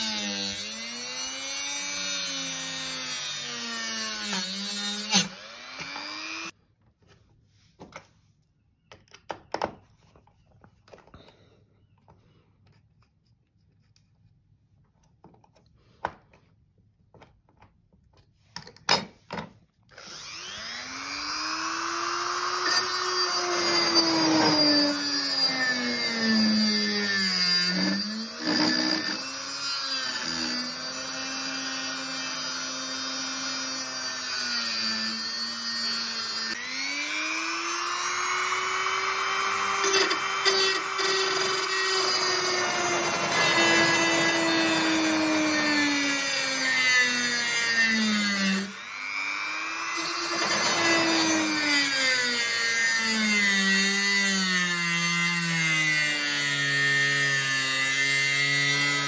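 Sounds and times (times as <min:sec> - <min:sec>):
rotary tool grinding steel: 0:00.0 - 0:06.6, 0:20.0 - 0:59.0.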